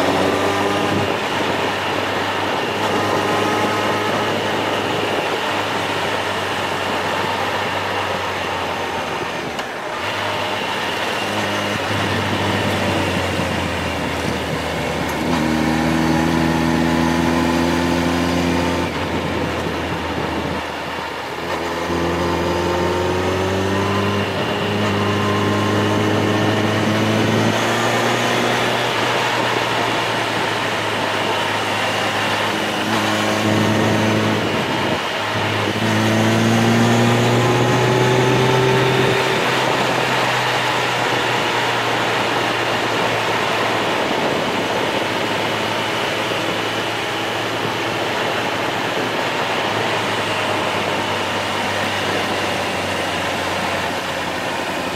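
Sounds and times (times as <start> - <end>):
road and wind noise: 0.0 - 54.9
vehicle engine revving: 0.0 - 54.9.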